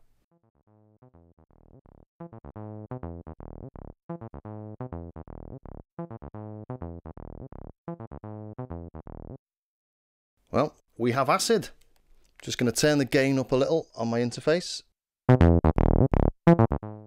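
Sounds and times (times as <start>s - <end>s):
synthesizer acid bassline: 1.6s - 9.4s, 15.3s - 17.0s.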